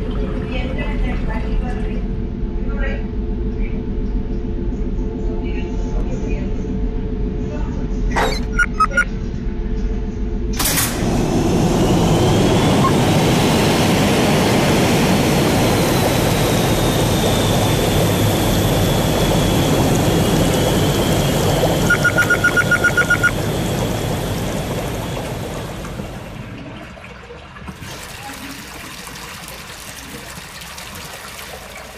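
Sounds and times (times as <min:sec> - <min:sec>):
low hum: 0:00.0 - 0:28.1
short high electronic beeps: 0:08.1 - 0:09.1, 0:21.9 - 0:23.4
water rushing through pipes: 0:10.6 - 0:31.9.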